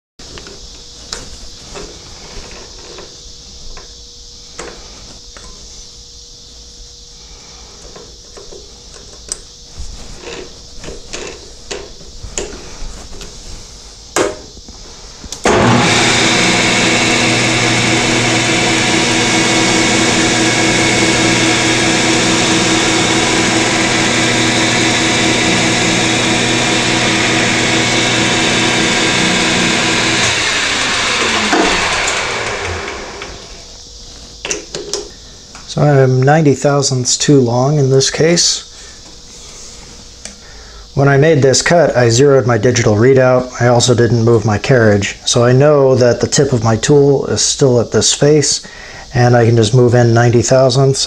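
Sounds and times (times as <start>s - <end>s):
lathe motor whining: 15.4s - 33.7s.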